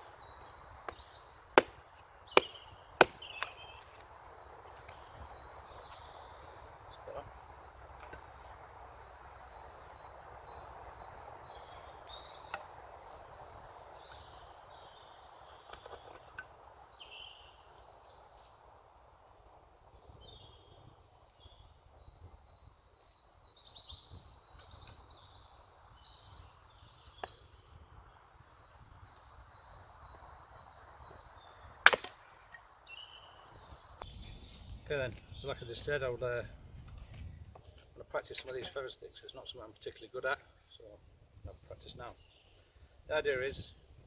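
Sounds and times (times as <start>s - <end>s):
birds chirping and singing: 0.0s - 18.6s, 20.0s - 31.7s, 32.3s - 44.0s
hatchet splitting log: 0.9s - 4.0s, 31.8s - 32.2s.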